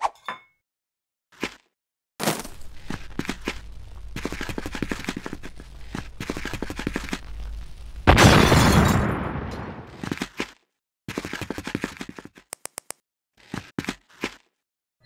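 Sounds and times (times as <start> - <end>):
fire crackling: 2.2 - 9.9
loud burst of flame: 2.4 - 9.9.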